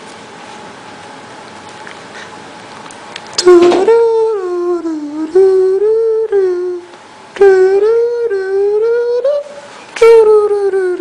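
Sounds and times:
child humming: 3.4s - 11.0s.

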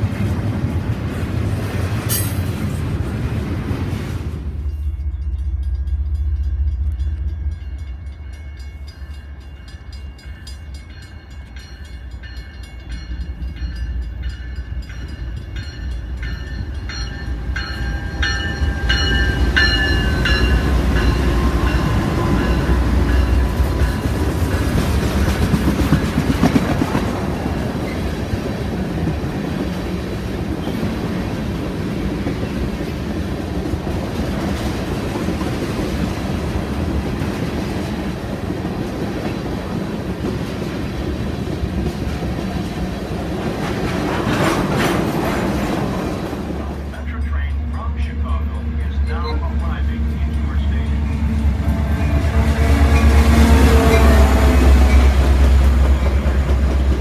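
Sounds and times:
diesel locomotives rumbling: 0.0s - 57.0s
train bell ringing: 2.1s - 2.5s, 4.5s - 26.6s, 46.9s - 56.5s
wheels clacking over rail joints: 14.9s - 31.0s, 31.8s - 46.9s.

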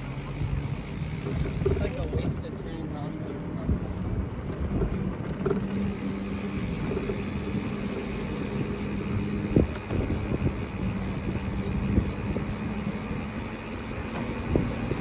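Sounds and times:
bicycle tyres rolling: 0.0s - 15.0s
low hum: 0.0s - 15.0s
wind noise: 6.5s - 13.4s, 14.0s - 15.0s.

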